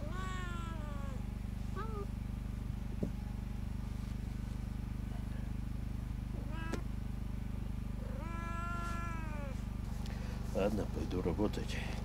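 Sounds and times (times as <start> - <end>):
cat meowing: 0.0 - 1.2, 1.8 - 2.1, 6.4 - 6.9, 8.0 - 9.6
steady low hum: 0.0 - 12.0.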